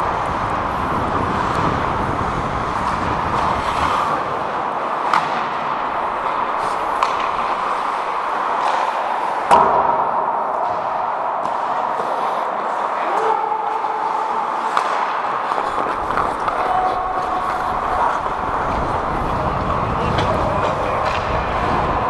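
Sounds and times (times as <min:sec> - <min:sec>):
skates scraping ice: 0:00.0 - 0:09.5, 0:10.5 - 0:22.0
arena noise: 0:00.0 - 0:22.0
stick and puck clacks: 0:00.0 - 0:22.0
loud puck bang: 0:05.0 - 0:08.8, 0:09.4 - 0:12.2.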